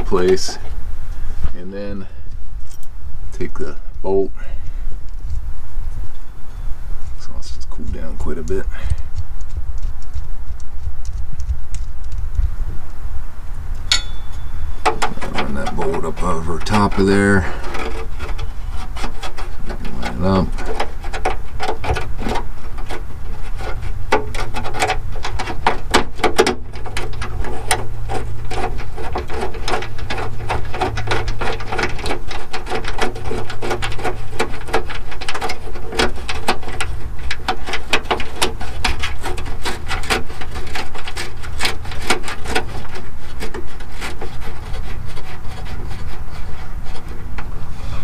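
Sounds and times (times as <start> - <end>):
steady low hum: 0.0 - 48.0
plastic clicks knocks and rubbing: 14.8 - 47.7.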